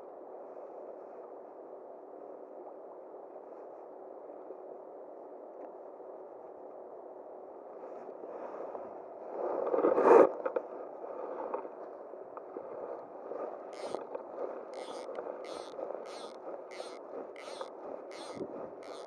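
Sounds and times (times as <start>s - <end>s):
flowing river water: 13.8s - 19.0s
noisy surge: 14.7s - 19.0s.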